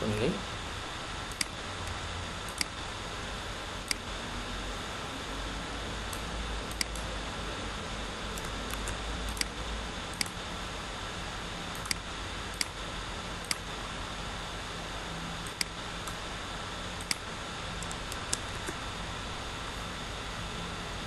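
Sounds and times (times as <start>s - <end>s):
steady background hiss: 0.0s - 21.0s
computer mouse clicking: 1.3s - 2.8s, 6.1s - 7.1s, 8.4s - 10.4s, 11.7s - 12.8s, 13.4s - 13.7s, 15.4s - 16.2s, 17.0s - 18.8s.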